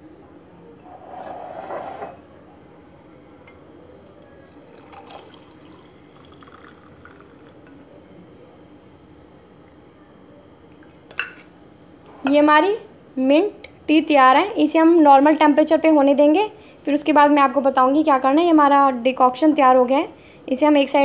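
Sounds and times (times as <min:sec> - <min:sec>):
faint trickle: 0:03.5 - 0:08.3
tea pouring into mug: 0:04.0 - 0:08.0.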